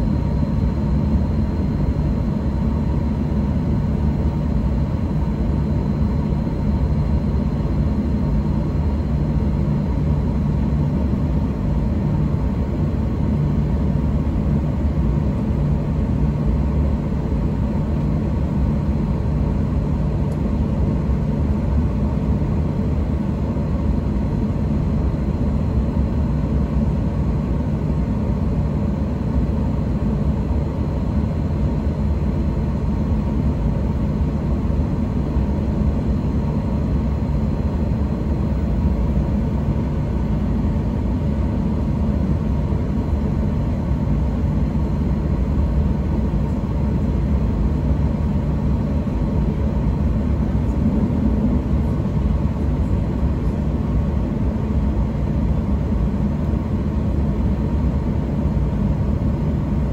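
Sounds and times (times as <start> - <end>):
faint steady whine: 0.0 - 59.9
jet engines idling: 44.2 - 59.9.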